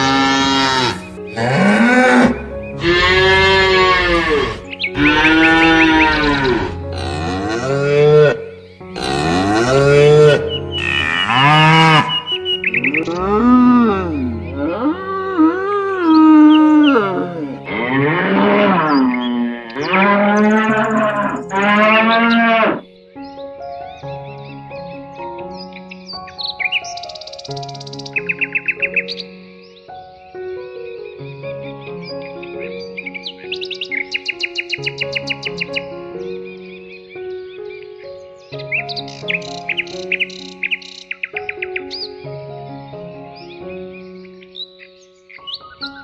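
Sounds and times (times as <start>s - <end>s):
cattle mooing: 0.0s - 12.2s, 12.8s - 22.8s
soft background music: 0.0s - 46.0s.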